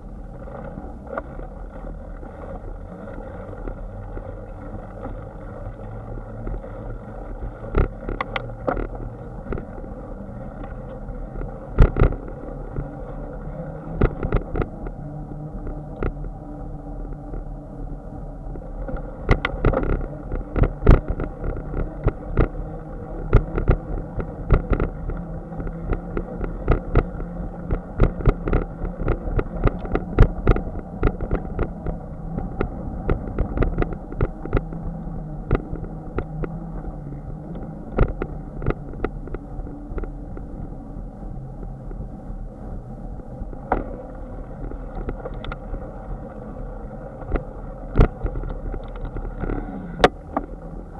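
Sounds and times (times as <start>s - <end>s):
wind and tyres rumbling: 0.0s - 50.9s
bicycle knocking and rattling: 3.4s - 12.9s, 13.7s - 16.3s, 18.8s - 40.7s, 47.2s - 50.6s.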